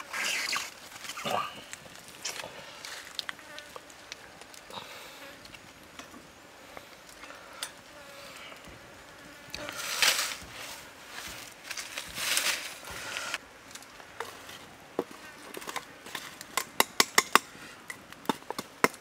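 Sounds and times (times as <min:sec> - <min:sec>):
faint insect buzz: 0:02.2 - 0:11.0.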